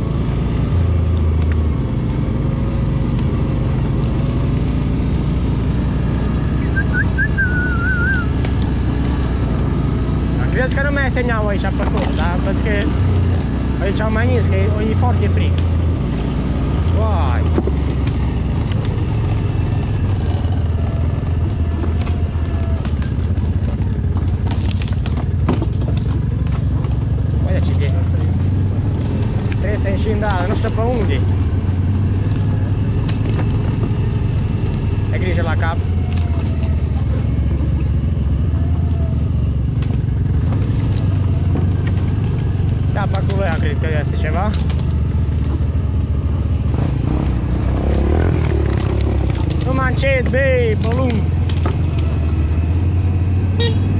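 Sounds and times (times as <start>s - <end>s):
atv engine running: 0.0s - 53.9s
wavering whistle-like tone: 6.6s - 8.3s.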